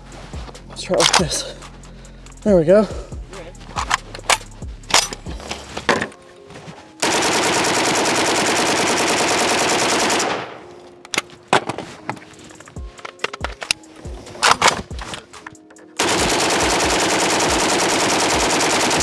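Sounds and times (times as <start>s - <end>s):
rifle handling clicks: 1.0s - 1.3s, 3.8s - 5.3s, 12.9s - 15.8s.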